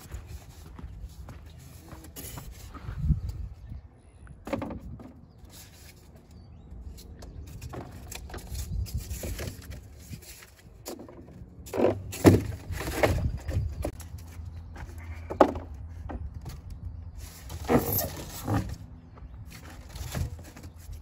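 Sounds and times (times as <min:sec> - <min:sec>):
foam blocks scraping and bumping: 0:17.2 - 0:18.8.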